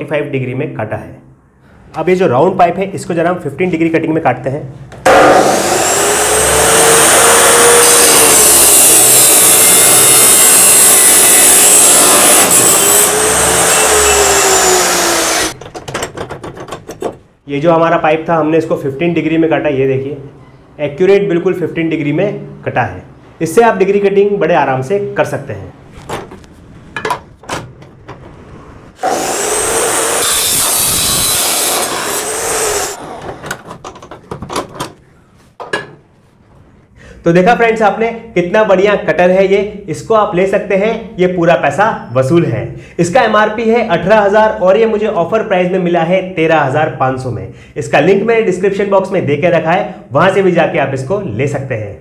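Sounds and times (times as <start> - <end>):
chop saw motor whine: 5.1 - 15.6, 29.0 - 33.4
saw wheel grinding through metal pipe: 5.1 - 15.6, 29.0 - 33.2.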